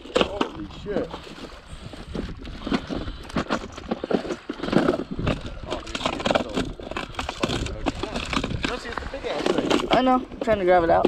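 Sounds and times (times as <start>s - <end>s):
tackle box clattering: 0.0s - 11.0s
fishing lures rattling: 2.3s - 10.5s.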